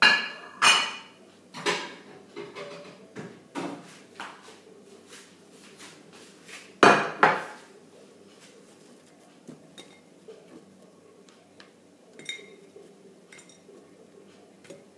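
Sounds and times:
kitchenware clattering: 0.0 - 3.9, 6.8 - 7.7, 9.4 - 10.8, 12.1 - 14.0.

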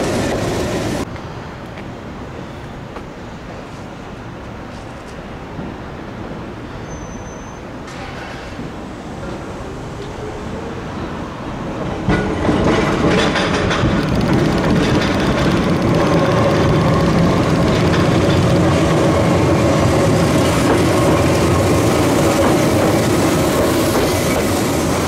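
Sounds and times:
electric train passing: 8.6 - 25.0
train wheels clicking over rails: 11.7 - 25.0.

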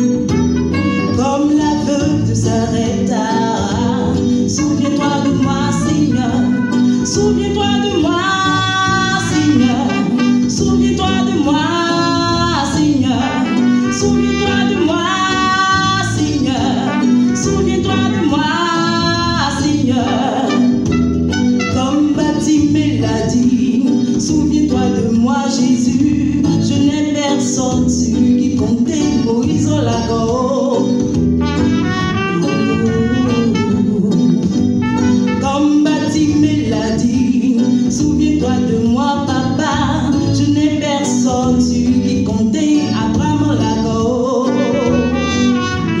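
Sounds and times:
woman singing into a microphone: 0.0 - 46.0
trumpet playing: 0.1 - 1.4, 4.6 - 7.4, 8.8 - 10.9, 13.1 - 16.0, 16.7 - 18.7, 20.0 - 22.1, 31.4 - 34.0, 34.8 - 35.9, 44.5 - 46.0.

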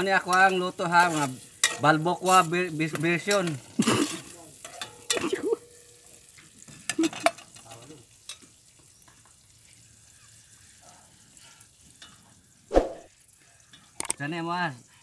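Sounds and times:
garlic sizzling in oil: 0.0 - 15.0
metal spatula scraping a pot: 0.3 - 2.6.

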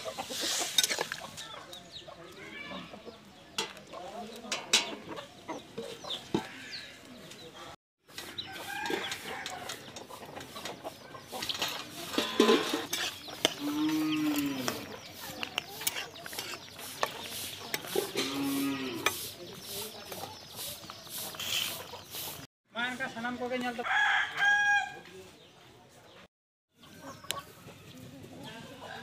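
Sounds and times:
hens clucking: 0.0 - 22.5.

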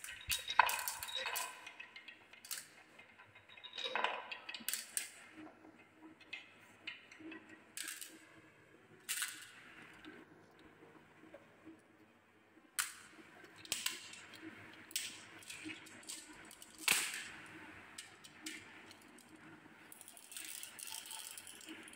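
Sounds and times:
glass marbles clicking: 0.0 - 5.2, 6.2 - 8.2, 19.9 - 21.9.

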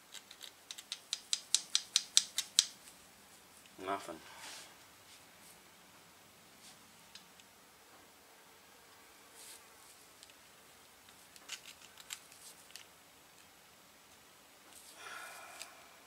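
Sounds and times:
light clicks and crackles: 11.0 - 13.5.

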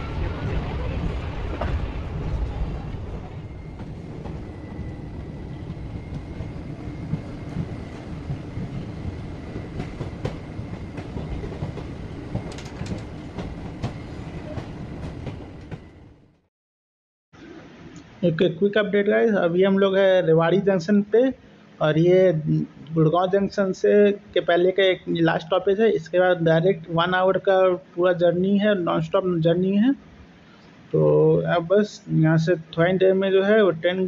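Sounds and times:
train rumble: 0.0 - 16.4
wheel clicks over rail joints: 12.3 - 14.0.

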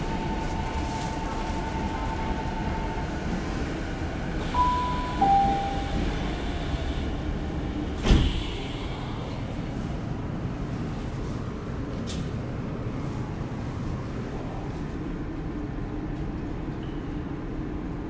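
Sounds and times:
train equipment hum: 0.0 - 18.0
two-note door chime: 4.6 - 6.0
sliding doors thumping shut: 8.0 - 8.5.

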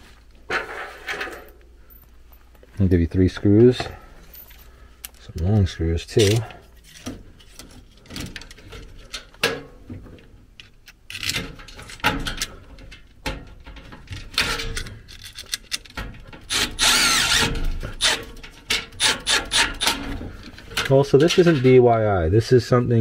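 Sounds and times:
handling clicks and rattles: 3.4 - 16.5, 19.7 - 22.0
power driver driving screws: 16.4 - 20.2.

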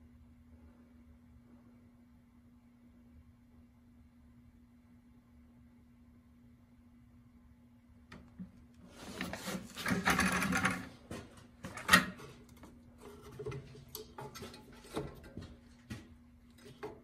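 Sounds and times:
faint steady hum: 0.0 - 17.0
plastic and metal parts rattling: 9.2 - 11.0.

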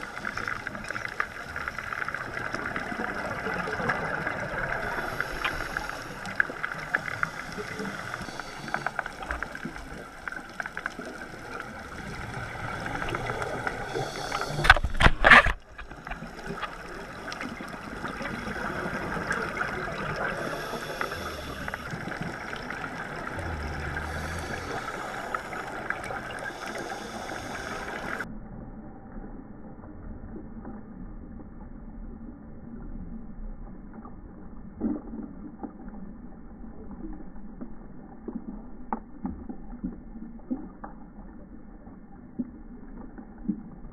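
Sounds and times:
exhaled bubbles: 0.0 - 28.2
regulator breathing underwater: 4.1 - 10.2, 11.1 - 15.1, 16.0 - 28.2.

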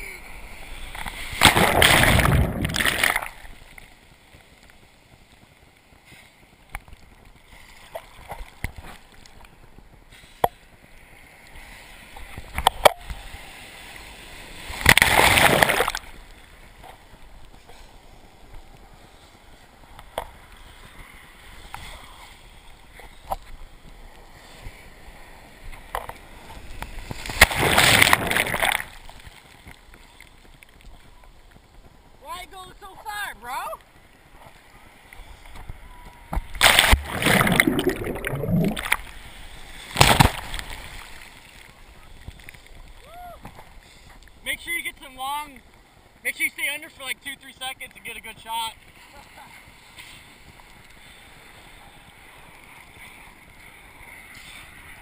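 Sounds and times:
ocean surf sloshing: 0.0 - 30.7, 31.8 - 55.0
whitewater rushing: 36.5 - 39.0.

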